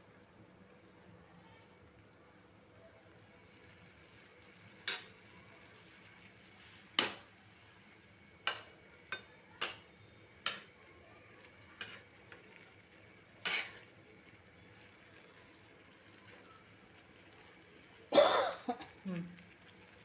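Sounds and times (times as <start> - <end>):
metal spatula scraping a metal pan: 11.8 - 12.0, 13.4 - 13.9.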